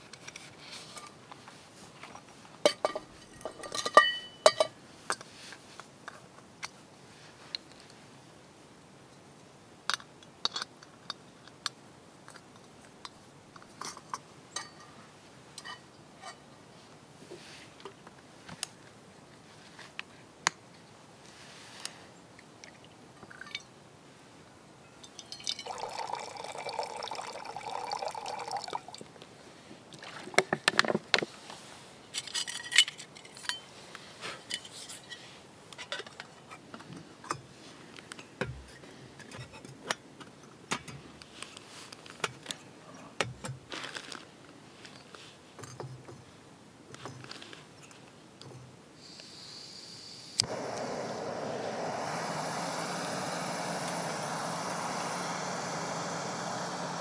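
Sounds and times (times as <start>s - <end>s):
water trickling into metal pot: 25.1s - 29.0s.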